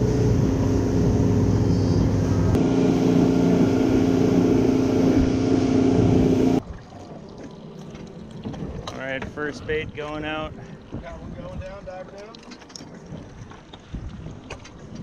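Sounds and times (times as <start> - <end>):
outboard motor running: 0.0 - 11.3
wind and water spray: 0.0 - 15.0.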